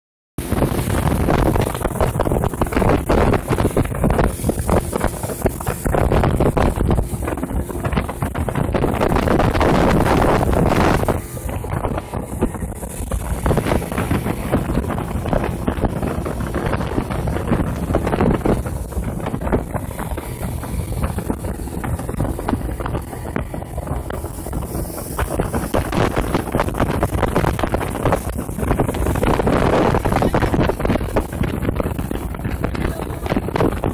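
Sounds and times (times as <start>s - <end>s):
outboard motor: 0.4s - 33.9s
rushing water: 0.4s - 33.9s
wind buffeting microphone: 0.4s - 33.9s.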